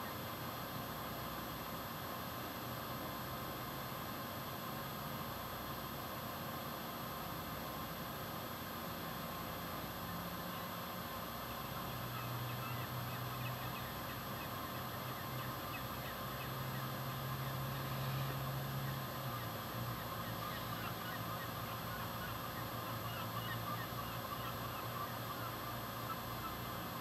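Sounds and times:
low steady hum: 0.0 - 27.0
birds calling: 11.8 - 26.7.

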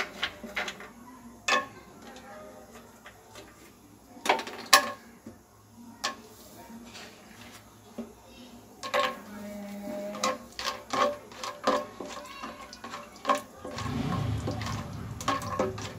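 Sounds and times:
nuts sizzling in oil: 0.0 - 15.9
spatula knocking and scraping pan: 8.8 - 15.9.

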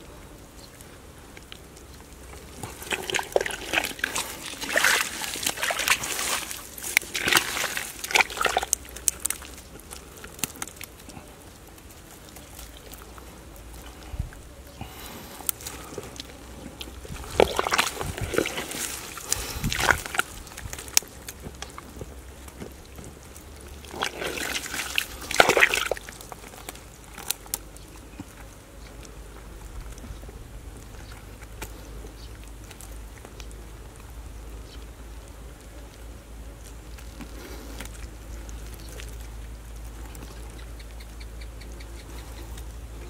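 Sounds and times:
wet mud squelching: 1.2 - 43.0
water sloshing: 1.4 - 28.3.

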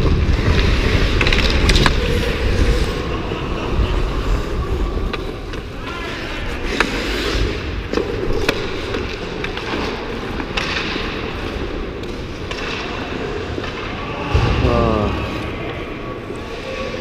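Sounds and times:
skate blades scraping ice: 0.1 - 3.4, 4.2 - 13.7.

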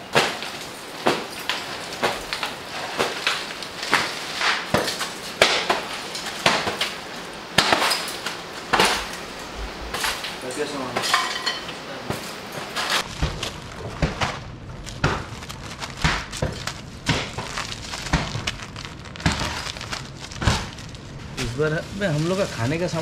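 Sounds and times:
camping utensils clinking and clattering: 7.6 - 13.1.

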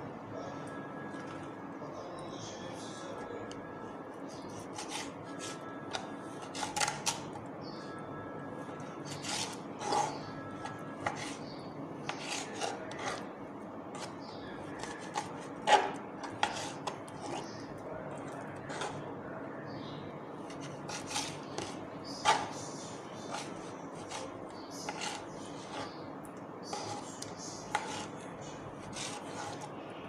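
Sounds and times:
knife tapping and scraping board: 4.5 - 7.3, 9.0 - 13.3, 13.9 - 17.6, 18.2 - 19.0, 20.4 - 26.0, 26.6 - 28.2, 28.8 - 29.7.

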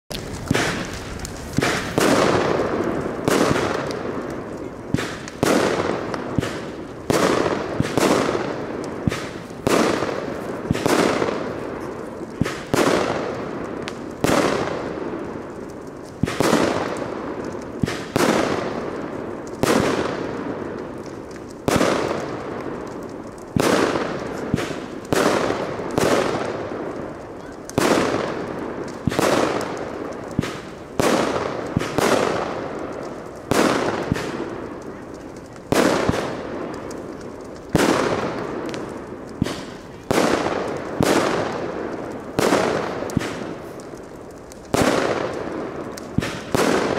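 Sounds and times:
firework battery bangs: 0.2 - 11.8, 44.7 - 46.9.

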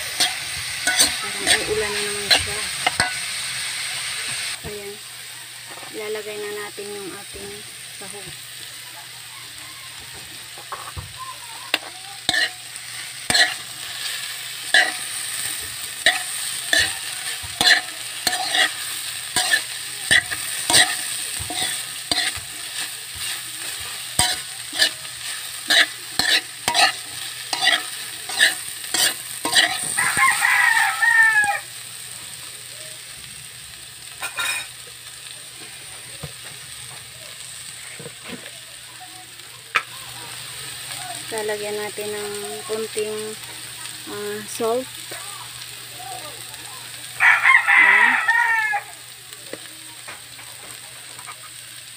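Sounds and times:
sizzle of frying: 0.0 - 51.9
spoon scraping metal pot: 0.2 - 3.3, 13.3 - 13.6, 17.6 - 22.5, 23.1 - 25.0, 25.7 - 30.0.

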